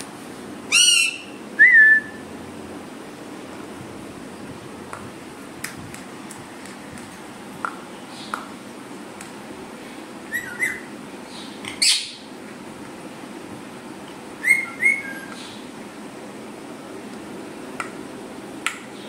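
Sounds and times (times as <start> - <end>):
parrot harsh call: 0.7 - 1.4
parrot whistles and chirps: 0.7 - 2.2, 10.3 - 10.9, 11.8 - 12.2, 14.4 - 15.6.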